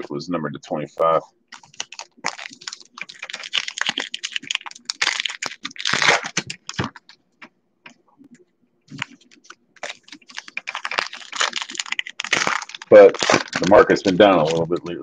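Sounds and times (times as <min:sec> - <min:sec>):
wrapper crinkling and ripping: 0:01.5 - 0:07.2, 0:08.9 - 0:15.0.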